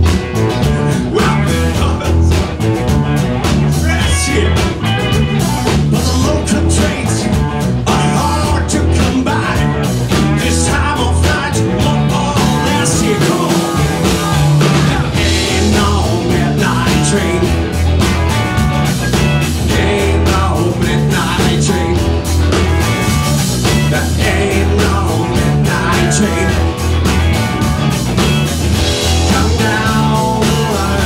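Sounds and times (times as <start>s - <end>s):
rock band playing: 0.0s - 31.0s
drum hits: 10.1s - 31.0s.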